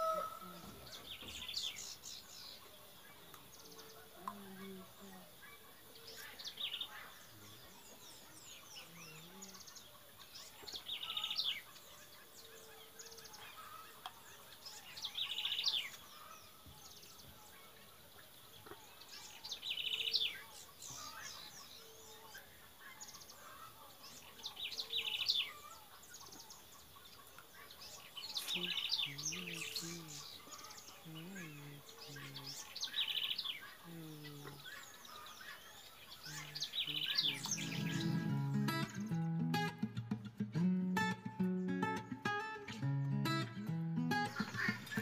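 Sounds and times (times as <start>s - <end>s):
faint bird chirps: 0.0s - 40.2s
songbird trilling: 27.6s - 39.3s.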